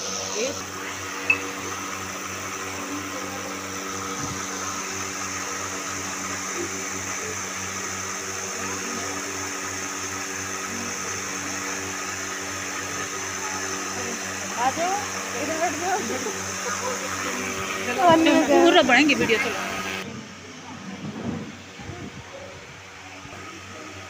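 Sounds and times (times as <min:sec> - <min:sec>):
low machine hum: 0:00.0 - 0:24.0.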